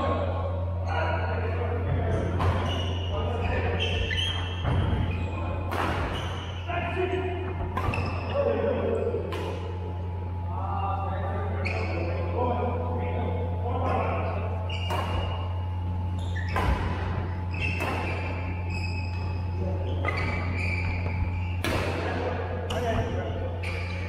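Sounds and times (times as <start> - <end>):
badminton racket hitting shuttlecock: 21.6 - 22.2.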